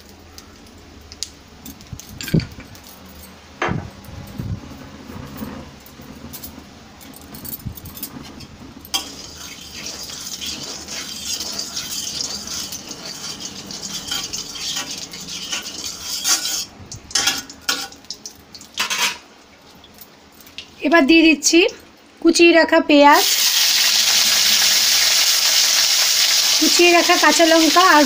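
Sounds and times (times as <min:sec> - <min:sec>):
metal spatula scraping iron pan: 0:09.0 - 0:18.0
oil sizzling in a pan: 0:09.0 - 0:19.2, 0:23.2 - 0:28.0.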